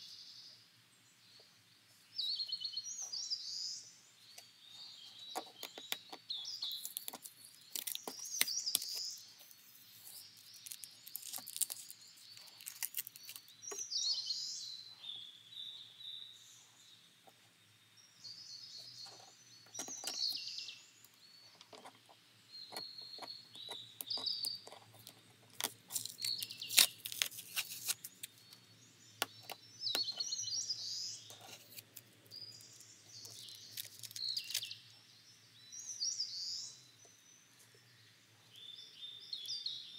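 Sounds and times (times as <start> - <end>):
small birds chirping: 0.0 - 39.9
craft knife cutting paper: 5.5 - 9.1, 9.8 - 13.8, 23.2 - 28.3, 31.3 - 32.0, 33.3 - 34.7
plastic film crackling: 6.7 - 9.0, 10.1 - 13.8, 25.6 - 28.3, 33.3 - 34.8.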